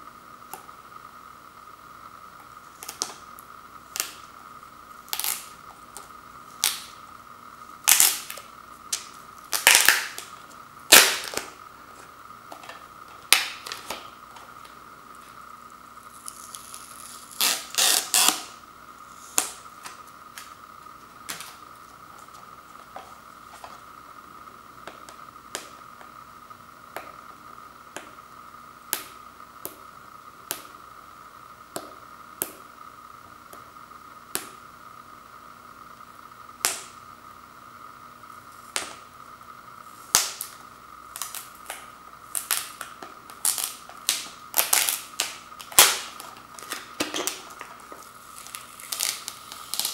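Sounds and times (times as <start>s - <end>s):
faint high hum: 0.0s - 49.9s
plastic wrap crackling: 9.0s - 11.5s, 41.1s - 49.9s.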